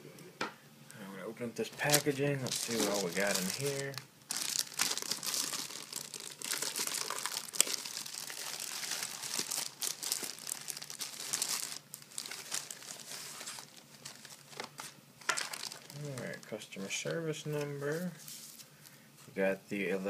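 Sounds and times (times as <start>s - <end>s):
plastic packaging crinkling: 1.7s - 16.6s.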